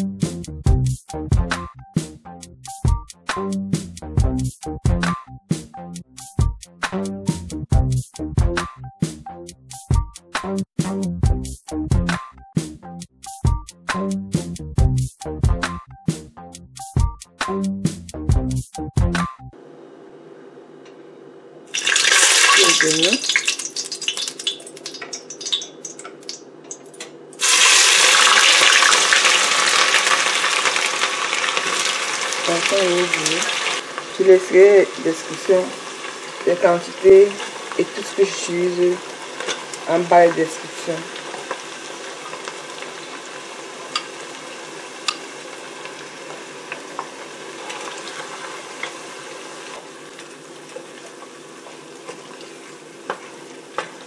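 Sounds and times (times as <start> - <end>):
onion sizzling in oil: 21.7 - 26.4, 27.4 - 54.0
hot oil crackling: 21.7 - 26.8, 27.4 - 54.0.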